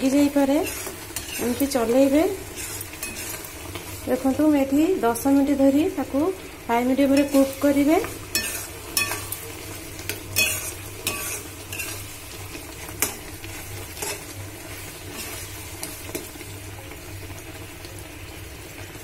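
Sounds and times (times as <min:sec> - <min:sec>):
syrup bubbling and sizzling: 0:00.0 - 0:19.0
spoon scraping a steel pan: 0:00.6 - 0:01.8, 0:02.5 - 0:03.5, 0:08.3 - 0:09.4, 0:10.1 - 0:12.1.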